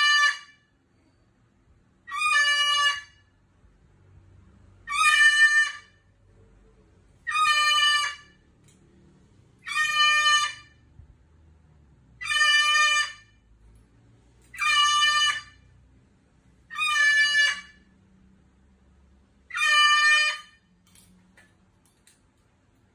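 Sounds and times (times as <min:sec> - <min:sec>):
cockatoo calling loudly: 0:00.0 - 0:00.7, 0:02.1 - 0:03.3, 0:04.8 - 0:06.1, 0:07.2 - 0:08.4, 0:09.6 - 0:10.9, 0:12.2 - 0:13.4, 0:14.5 - 0:15.7, 0:16.7 - 0:17.9, 0:19.5 - 0:20.7.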